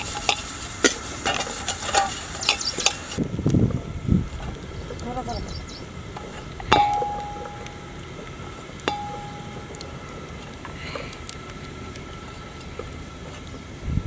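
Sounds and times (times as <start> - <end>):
metal plate knocking on pot: 6.7 - 7.9, 8.9 - 9.8.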